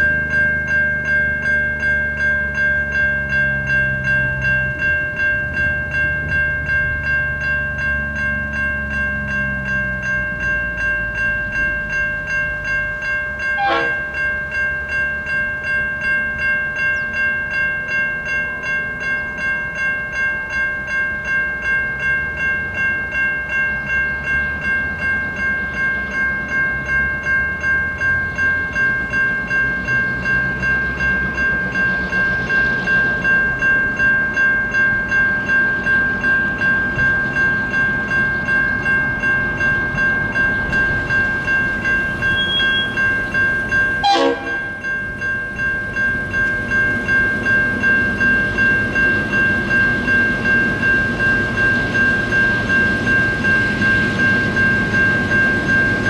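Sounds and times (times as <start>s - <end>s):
diesel train rumbling: 0.0s - 56.0s
level crossing bell ringing: 0.0s - 56.0s.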